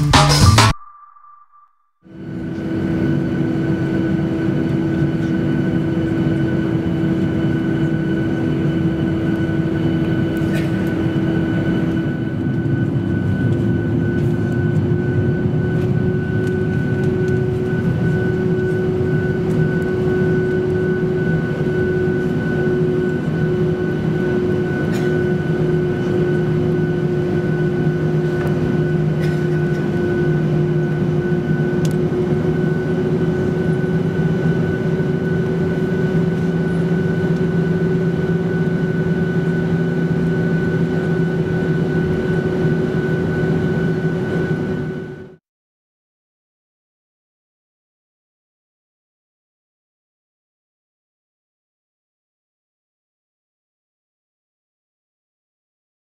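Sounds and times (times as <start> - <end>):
jet engines running: 2.2 - 45.4.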